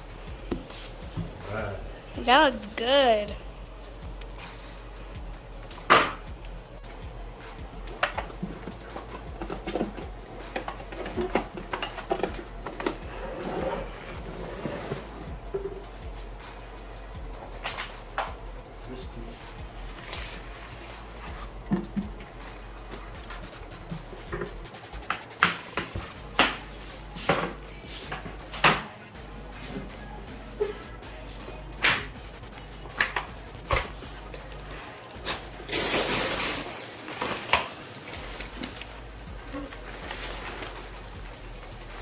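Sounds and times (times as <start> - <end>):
paper crinkling: 35.7 - 41.2.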